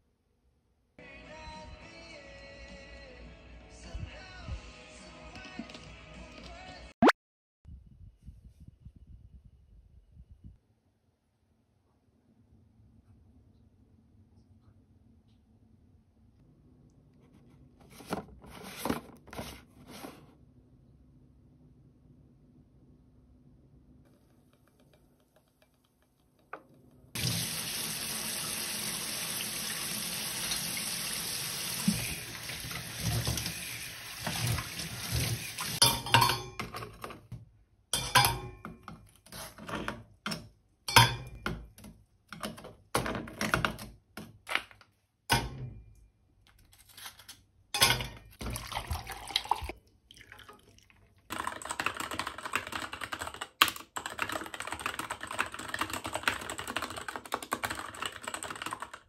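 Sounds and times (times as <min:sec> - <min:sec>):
water running: 0:27.2 - 0:36.2, 0:47.9 - 0:51.5
fast mechanical keyboard typing: 0:51.3 - 0:59.0.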